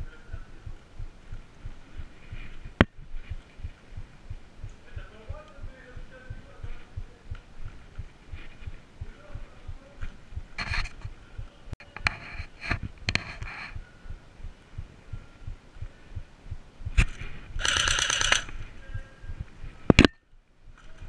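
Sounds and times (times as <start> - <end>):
airsoft gun firing rapid shots: 17.6 - 18.5.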